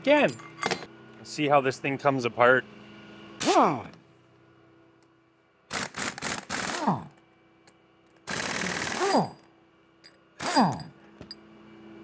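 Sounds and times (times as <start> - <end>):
motor winding down: 5.7 - 7.2, 8.2 - 9.5, 10.4 - 10.9.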